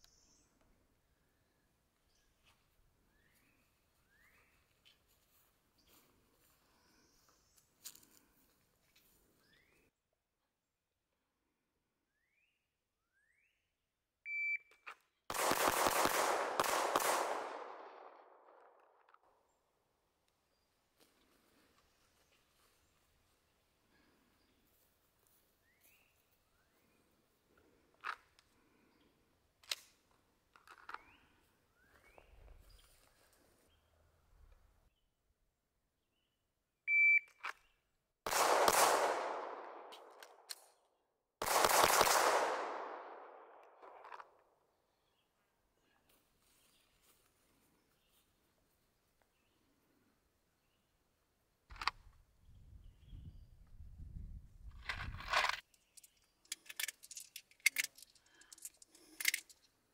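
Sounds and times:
shot timer beep: 0:14.3 - 0:14.7, 0:36.9 - 0:37.3
handgun shots echoing: 0:15.3 - 0:18.7, 0:38.3 - 0:40.7, 0:41.4 - 0:44.2.

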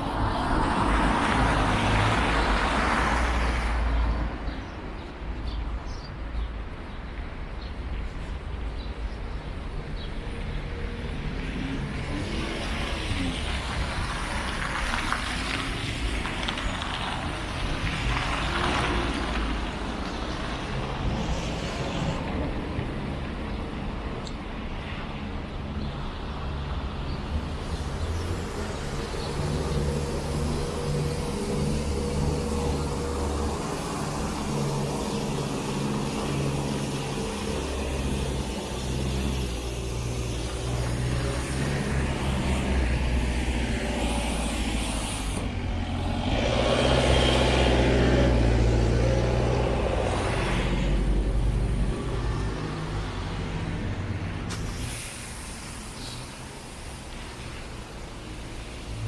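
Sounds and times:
diesel engine running: 0:27.3 - 0:59.0.

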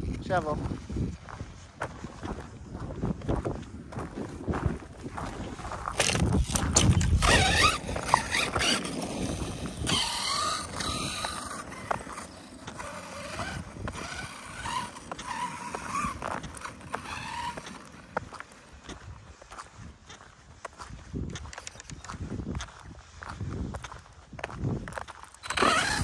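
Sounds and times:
gravel crunching under tyres: 0:00.0 - 0:26.0
toy truck electric motor whining: 0:06.0 - 0:18.1, 0:25.4 - 0:26.0.

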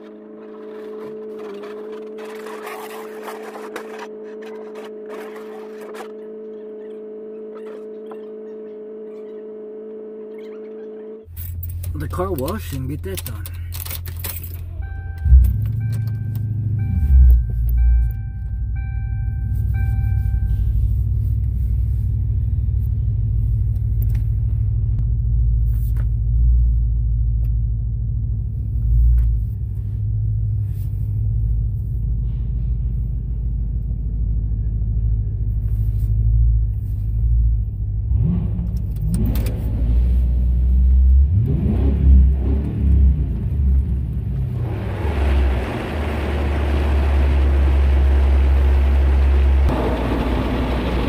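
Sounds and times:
car engine and road rumble: 0:00.0 - 0:51.0
car warning chime: 0:14.7 - 0:20.8.

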